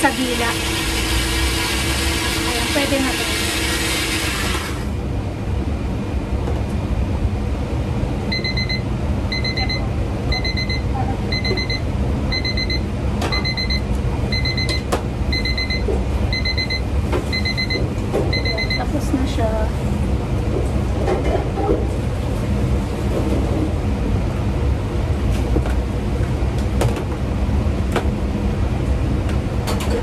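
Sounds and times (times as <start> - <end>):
low kitchen hum: 0.0 - 30.0
electronic alarm beeping: 8.3 - 18.9.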